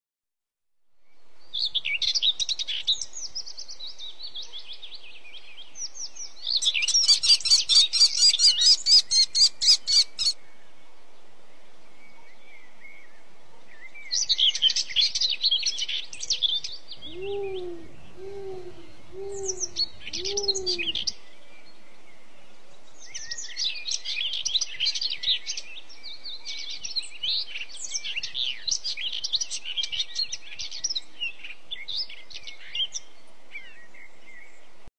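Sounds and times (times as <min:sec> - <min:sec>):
songbirds chirping and trilling: 0:01.4 - 0:10.4, 0:12.0 - 0:34.8
bird hooting low notes: 0:17.0 - 0:21.1.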